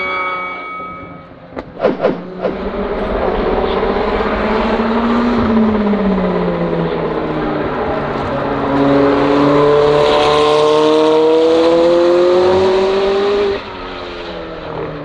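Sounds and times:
race car accelerating: 0:01.6 - 0:15.0.

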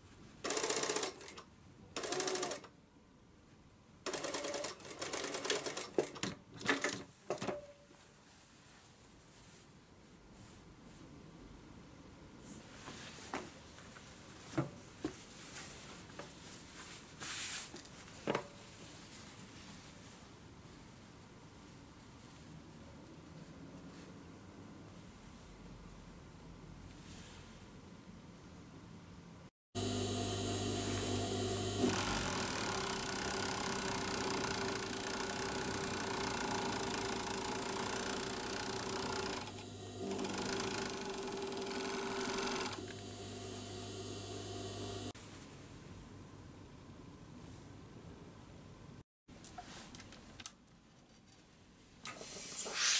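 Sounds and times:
overlock sewing machine running: 0:02.0 - 0:02.7, 0:29.8 - 0:45.1
sewing machine clunk: 0:31.8 - 0:43.0.

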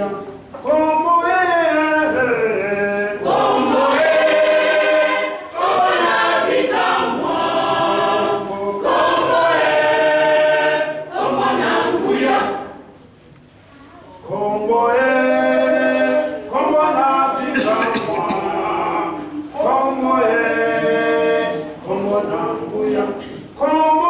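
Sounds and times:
choir singing long notes: 0:02.8 - 0:12.9, 0:14.3 - 0:23.2.

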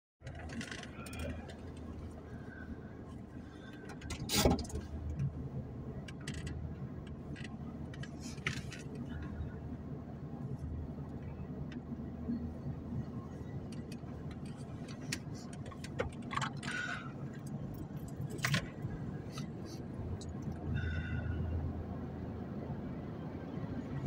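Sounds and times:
diesel engine rumble: 0:00.2 - 0:24.0.

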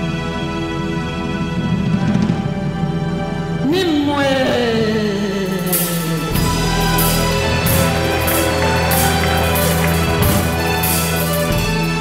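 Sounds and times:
music with held tones: 0:06.2 - 0:12.0.

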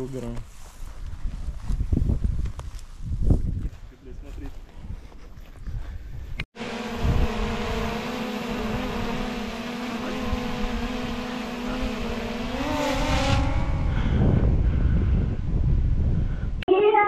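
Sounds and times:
low wind rumble: 0:01.0 - 0:04.2, 0:04.8 - 0:16.6
drone propellers whining: 0:06.6 - 0:14.7.

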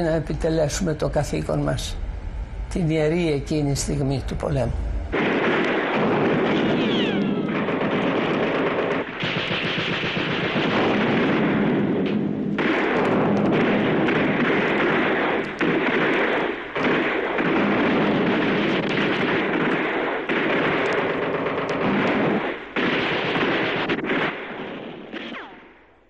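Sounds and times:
artillery fire: 0:05.1 - 0:25.9
rapid gunfire: 0:05.2 - 0:25.6.

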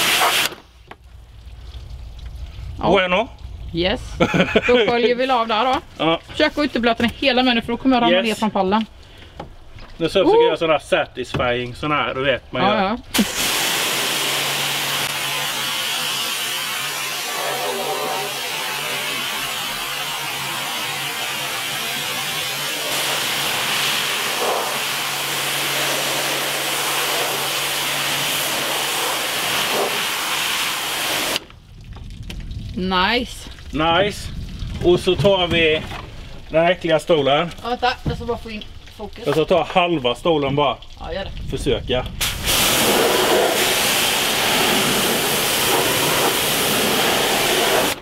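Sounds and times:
pressure washer jet hissing: 0:00.0 - 0:00.7, 0:13.1 - 0:31.4, 0:42.2 - 0:48.0
pump motor humming: 0:13.1 - 0:31.5.

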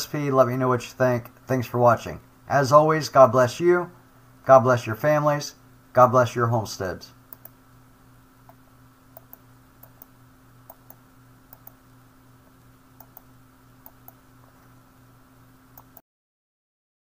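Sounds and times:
low electrical hum: 0:00.0 - 0:16.0
small irregular clicks: 0:07.3 - 0:07.6, 0:08.4 - 0:11.8, 0:13.0 - 0:14.2, 0:15.7 - 0:16.0.

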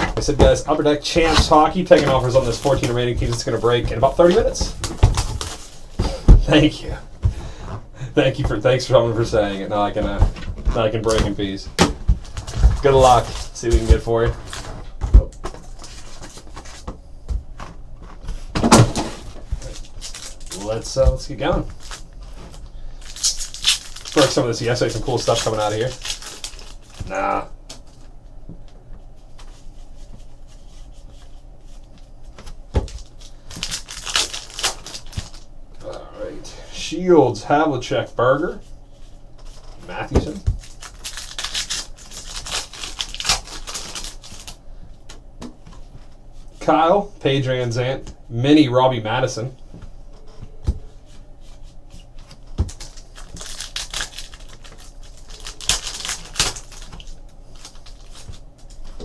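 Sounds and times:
foil pack tearing: 0:01.1 - 0:05.8, 0:18.7 - 0:27.4, 0:32.8 - 0:35.4, 0:40.3 - 0:44.6, 0:52.2 - 0:59.0.

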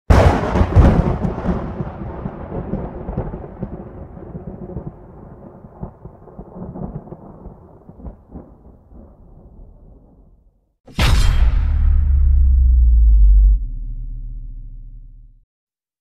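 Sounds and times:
thunder-like rumble: 0:11.0 - 0:15.4.

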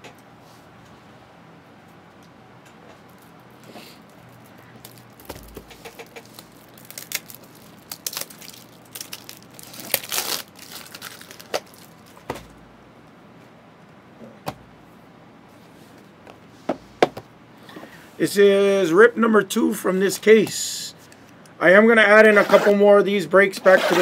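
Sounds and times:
plastic wrap crinkling: 0:03.1 - 0:12.3.

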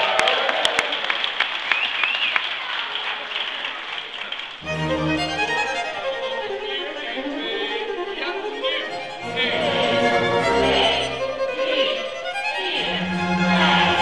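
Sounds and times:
music: 0:04.6 - 0:14.0
children's voices: 0:06.5 - 0:14.0.

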